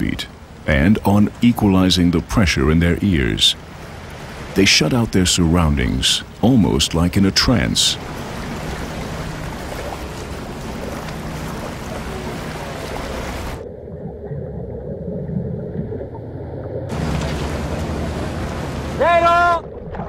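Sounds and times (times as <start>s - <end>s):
wind over choppy sea: 0.0s - 6.5s, 7.3s - 13.7s, 16.9s - 20.0s.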